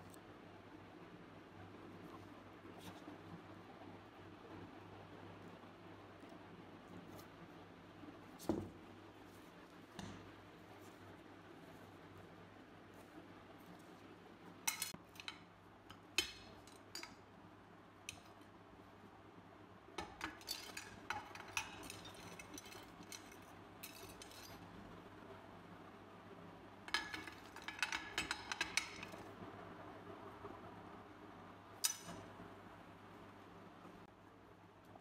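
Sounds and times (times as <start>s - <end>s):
metal parts clinking on glass: 14.7s - 15.4s, 20.0s - 24.6s, 26.9s - 29.2s.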